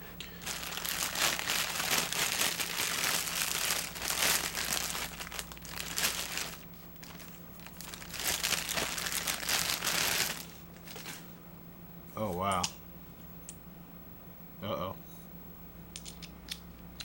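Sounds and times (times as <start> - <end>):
plastic bag crinkling: 0.4 - 11.3.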